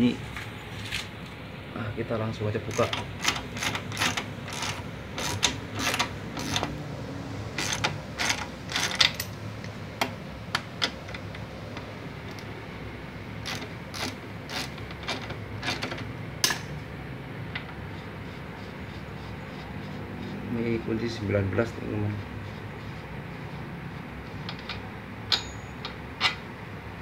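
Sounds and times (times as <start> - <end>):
ratchet wrench clicking: 2.7 - 6.8, 7.6 - 9.4, 13.4 - 16.7.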